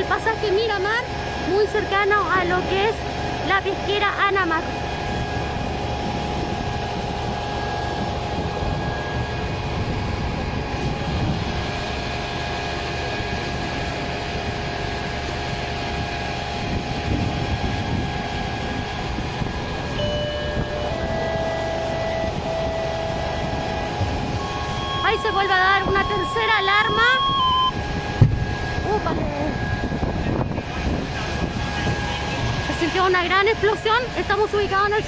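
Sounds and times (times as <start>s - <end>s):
engine drone with hiss: 0.0s - 35.0s
short high tones: 20.0s - 27.8s.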